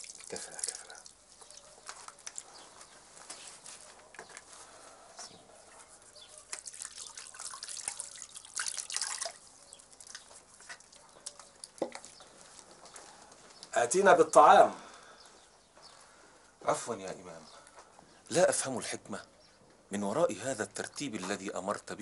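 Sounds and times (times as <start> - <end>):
water pouring and splashing into bowl: 0.0 - 2.6, 6.5 - 12.2
water dripping: 0.0 - 3.0, 6.3 - 13.7.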